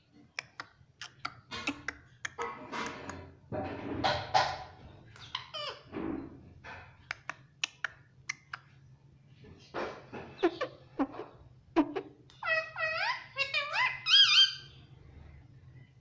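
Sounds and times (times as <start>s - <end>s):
parakeet raspy calls: 5.2s - 5.9s, 10.4s - 14.8s
beak tapping plastic bars: 7.0s - 8.6s.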